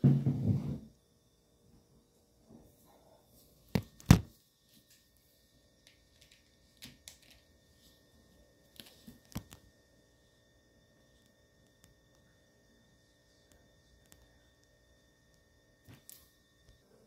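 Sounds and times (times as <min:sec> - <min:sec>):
faint clicks and taps: 0:08.8 - 0:09.6, 0:13.4 - 0:16.8.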